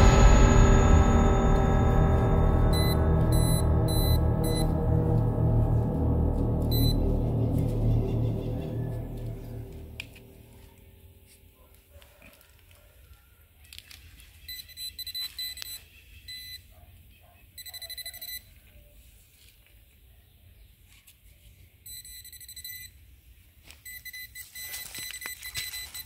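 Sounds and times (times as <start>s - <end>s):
metal detector beeping: 2.7s - 4.7s, 6.7s - 7.0s, 14.4s - 16.7s, 17.6s - 18.5s, 21.9s - 23.0s, 23.8s - 26.0s.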